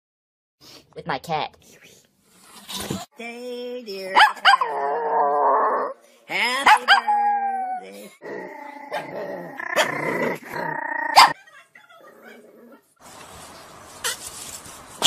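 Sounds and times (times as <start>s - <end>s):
dog howling: 6.8s - 10.0s.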